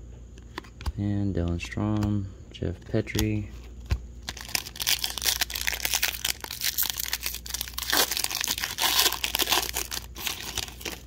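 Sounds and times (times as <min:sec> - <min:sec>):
foil wrapper tearing and crinkling: 0:04.2 - 0:11.0.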